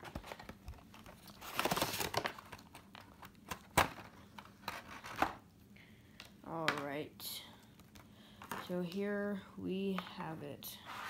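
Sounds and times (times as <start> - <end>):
plastic and cardboard crinkling: 0.0 - 5.4.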